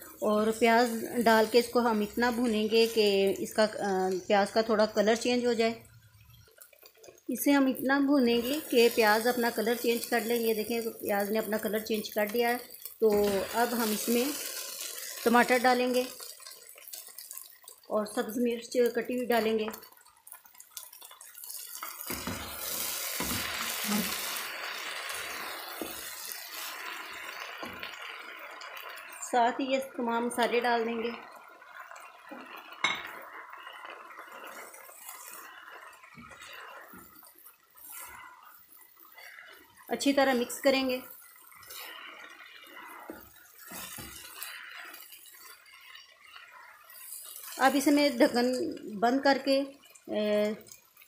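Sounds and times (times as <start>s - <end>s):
vegetables sizzling in hot oil: 0.0s - 51.0s
spatula scraping a pan: 21.4s - 29.0s, 31.8s - 48.5s.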